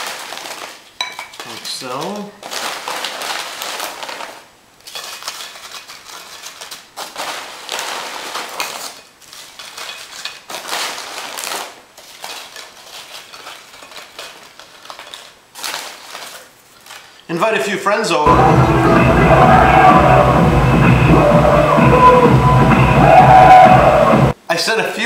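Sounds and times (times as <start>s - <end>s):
tortilla chips rustling on a plate: 0.0s - 17.6s.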